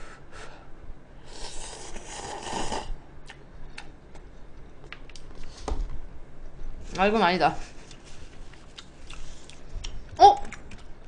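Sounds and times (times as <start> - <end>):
person slurping noodles: 1.3 - 3.0
person chewing: 7.8 - 11.0.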